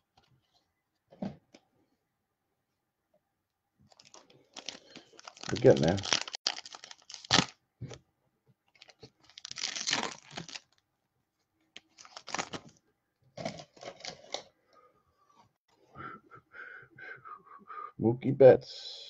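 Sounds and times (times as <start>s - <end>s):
card pack wrappers tearing: 3.9s - 7.6s, 8.8s - 10.8s, 11.8s - 12.7s.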